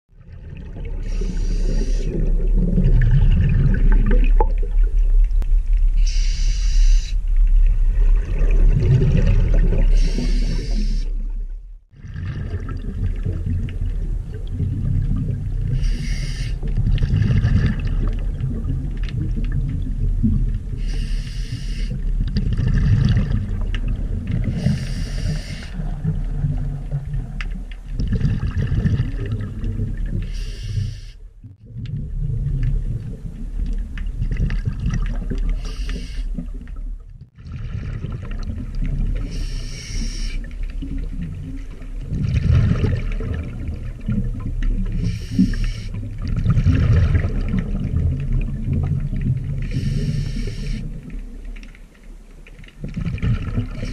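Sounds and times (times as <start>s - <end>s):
bubbling exhaled air: 0.2s - 4.9s, 7.9s - 11.3s, 11.9s - 27.4s, 28.0s - 36.7s, 37.3s - 51.0s, 52.9s - 53.9s
regulator hissing inhale: 1.0s - 2.2s, 6.0s - 7.2s, 9.9s - 11.2s, 15.8s - 16.6s, 20.8s - 22.0s, 24.5s - 25.8s, 30.2s - 31.2s, 35.6s - 36.3s, 39.2s - 40.5s, 45.0s - 46.0s, 49.6s - 50.9s.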